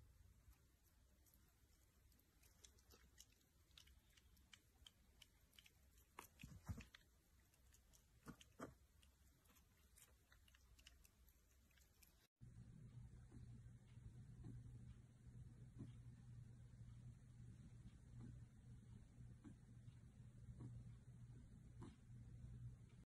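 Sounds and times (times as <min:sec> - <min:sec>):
puppy chewing treat: 0:00.9 - 0:12.3.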